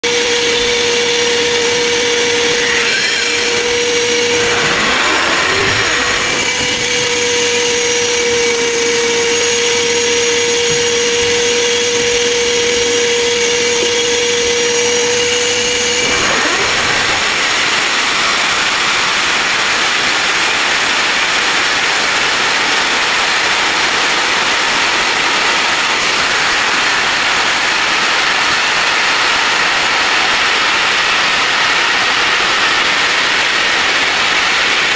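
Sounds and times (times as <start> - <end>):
core drill boring through wall: 0.1 - 34.9
vacuum cleaner suction: 1.7 - 8.4, 13.4 - 18.8.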